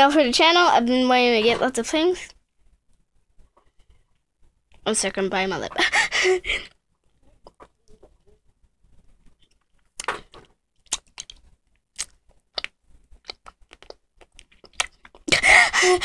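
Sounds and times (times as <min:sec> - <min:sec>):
wet mouth clicks and lip smacks: 0:09.4 - 0:15.3.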